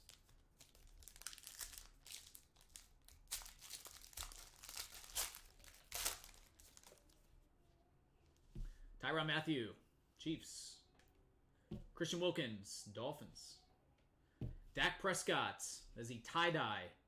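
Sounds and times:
foil wrapper crinkling: 0.0 - 7.1.

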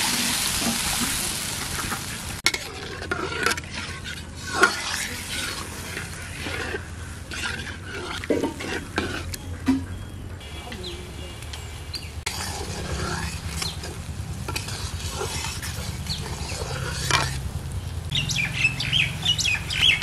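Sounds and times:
water hissing in hot curry: 0.0 - 9.2, 10.4 - 20.0
metal spatula scraping a wok: 0.0 - 9.7, 12.1 - 17.8
curry simmering sizzle: 0.0 - 9.8, 10.4 - 20.0.

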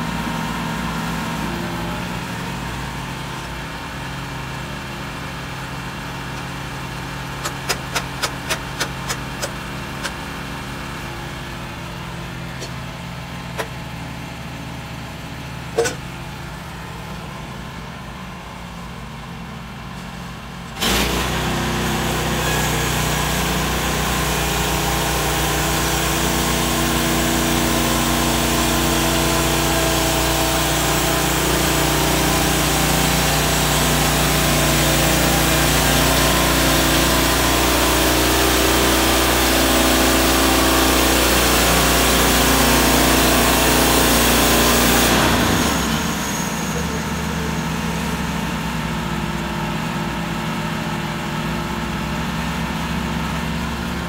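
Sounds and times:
small gas engine running: 0.0 - 54.0
bandsaw blade sawing wood: 7.3 - 10.2, 12.4 - 12.9, 15.8 - 16.0, 20.8 - 48.0.

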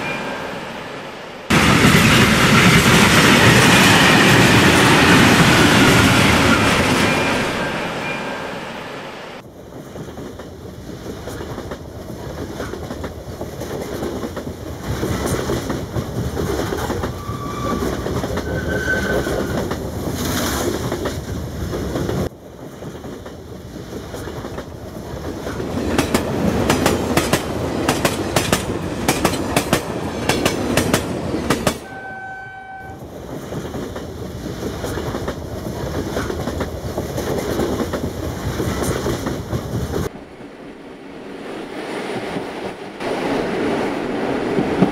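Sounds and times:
toy train horn toots: 31.8 - 33.0.

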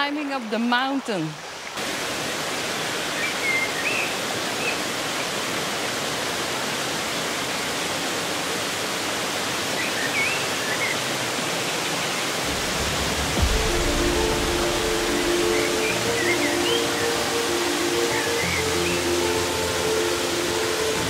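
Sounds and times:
water tumbling over cascades: 1.0 - 21.0
bird chirping: 13.6 - 20.9.

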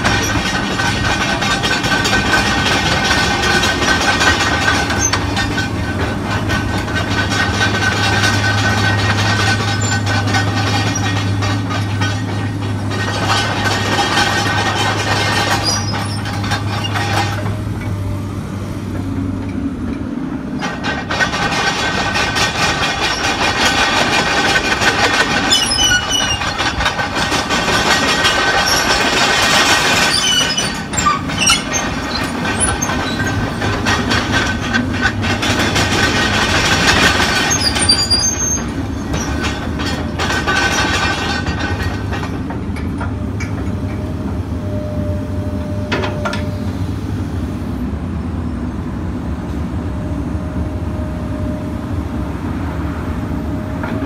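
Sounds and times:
diesel engine running: 0.0 - 54.0
steel tracks clanking and squealing: 0.0 - 54.0.

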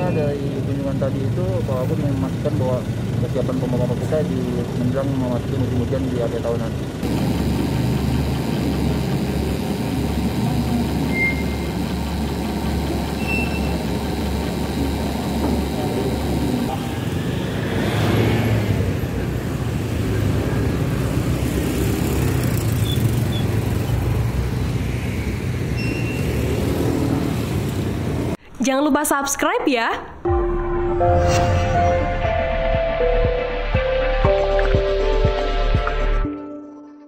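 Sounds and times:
road traffic noise: 0.0 - 28.4
vehicle passing: 16.5 - 28.4.

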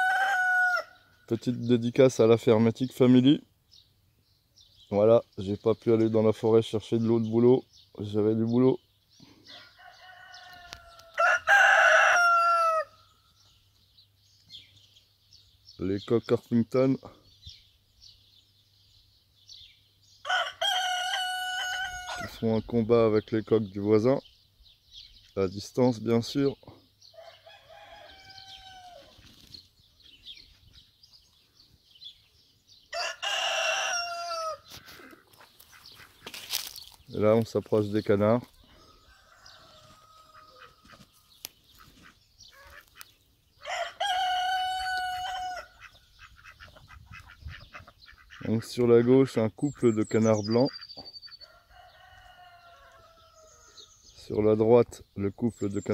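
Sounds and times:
rooster crowing: 0.0 - 1.1, 9.5 - 13.1, 20.2 - 22.4, 27.1 - 29.2, 32.9 - 34.7, 38.6 - 41.0, 43.6 - 45.8, 51.4 - 53.8.

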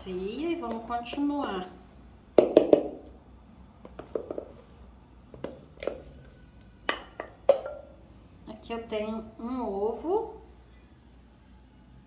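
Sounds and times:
wooden spoon knocking on bowl: 2.4 - 3.0, 6.9 - 7.9.

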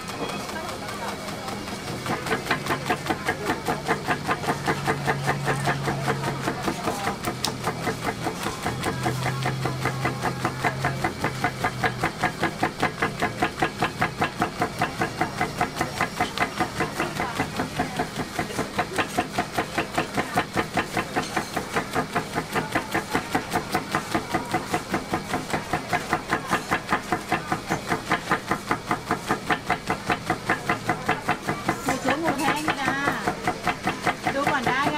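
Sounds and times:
pounding machine rapid knocking: 0.0 - 34.9.

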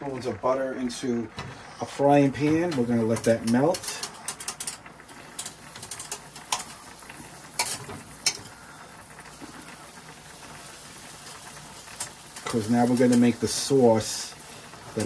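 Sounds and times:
butter sizzling in a frying pan: 0.0 - 15.0.

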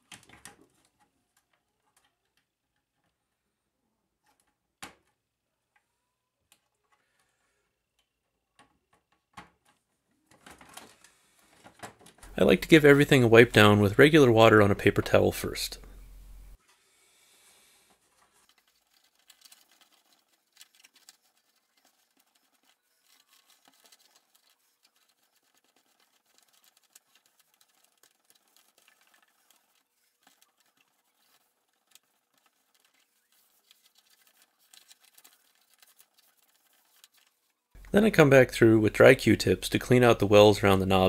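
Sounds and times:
paper towel rubbing on plastic: 17.9 - 39.1.

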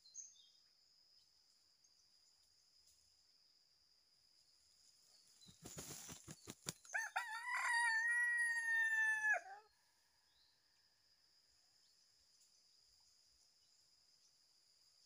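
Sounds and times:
faint high insect buzz: 0.0 - 15.0
rooster crowing: 6.9 - 9.7.

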